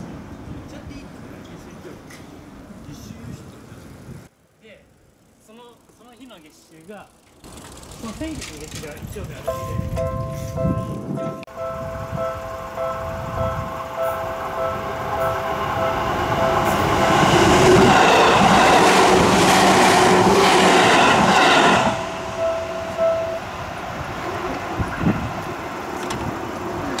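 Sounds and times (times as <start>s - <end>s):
electric train passing: 4.4s - 27.0s
level-crossing warning bell: 9.4s - 19.5s, 20.7s - 25.8s.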